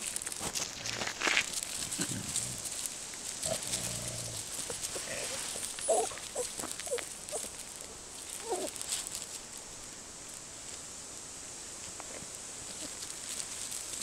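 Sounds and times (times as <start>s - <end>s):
paws scuffling on gravel: 0.0s - 10.9s, 11.7s - 14.0s
puppy squeaky grunts: 4.7s - 7.5s, 8.4s - 8.7s.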